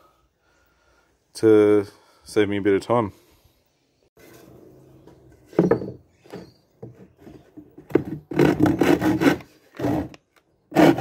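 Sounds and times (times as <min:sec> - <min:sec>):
board scraping and knocking: 0:04.2 - 0:11.0
handsaw cutting a board: 0:08.0 - 0:11.0.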